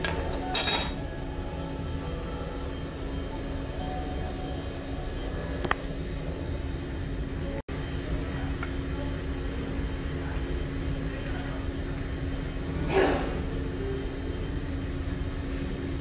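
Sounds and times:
utensils clinking: 0.0s - 1.0s
kitchen background hum: 0.0s - 16.0s.

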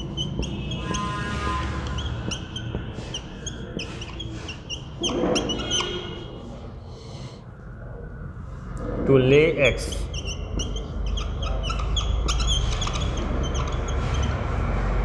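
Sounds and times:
whiteboard marker squeaking: 0.0s - 6.6s, 9.7s - 14.9s.

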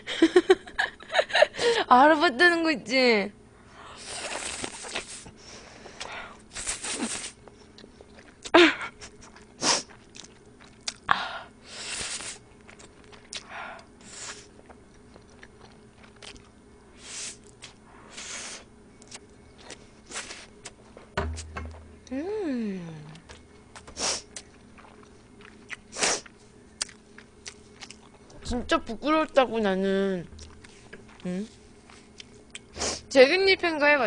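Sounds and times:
noodle slurping: 4.0s - 5.3s, 6.5s - 7.4s
mouth smacks and chewing: 9.2s - 11.1s, 12.6s - 13.9s, 14.6s - 16.5s, 23.2s - 28.3s, 30.4s - 32.7s.

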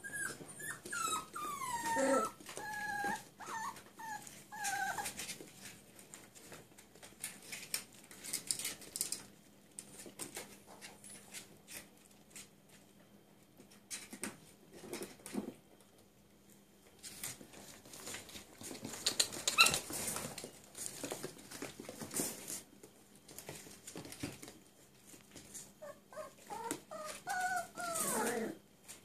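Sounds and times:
puppy squealing: 0.0s - 5.1s, 25.8s - 28.6s
puppies yipping and whimpering: 0.0s - 5.2s, 25.8s - 28.6s
paws clicking on tiled floor: 0.1s - 16.0s, 16.8s - 29.0s.

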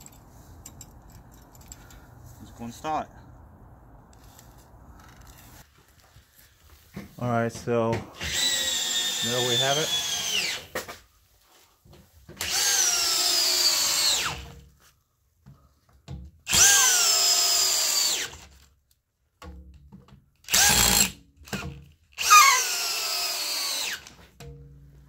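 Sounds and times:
cordless drill driving screws: 8.2s - 10.7s, 12.4s - 14.4s, 16.5s - 18.4s, 20.5s - 21.6s, 22.2s - 24.2s.

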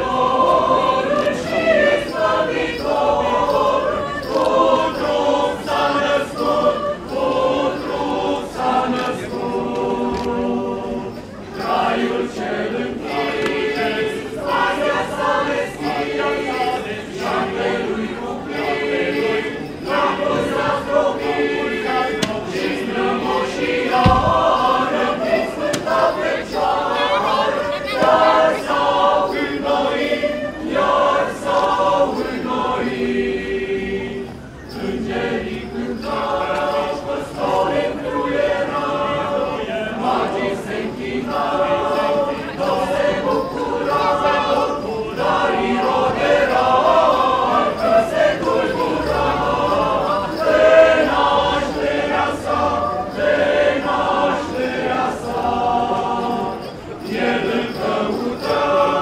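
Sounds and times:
choir singing a carol: 0.0s - 59.0s
low thump: 23.9s - 24.8s.

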